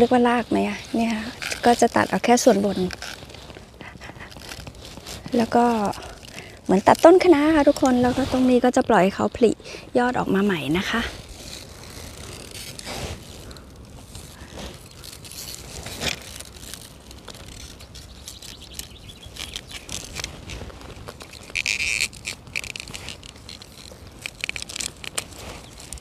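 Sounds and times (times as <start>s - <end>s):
leaves brushing: 0.0s - 26.0s
wind on microphone: 5.2s - 14.8s.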